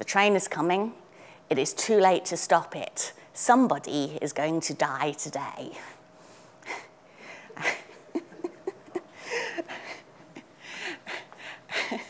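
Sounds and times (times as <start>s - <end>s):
woman laughing: 7.6s - 10.5s, 11.1s - 12.0s.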